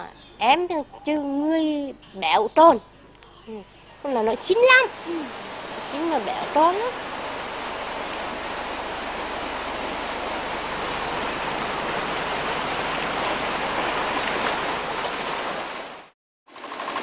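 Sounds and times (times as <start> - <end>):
surf washing over rocks: 4.1 - 16.1.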